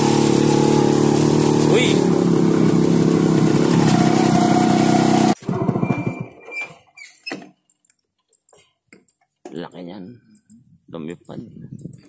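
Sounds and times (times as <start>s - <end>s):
motorcycle engine running: 0.0s - 6.3s
high squeak: 5.8s - 7.5s.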